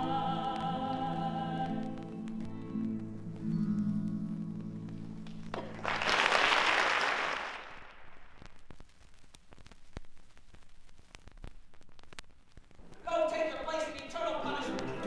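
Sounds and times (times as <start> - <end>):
singers and band holding a chord: 0.0 - 2.3, 14.1 - 15.0
vinyl record surface clicks: 0.5 - 5.8, 7.9 - 15.0
audience applause: 5.2 - 8.3.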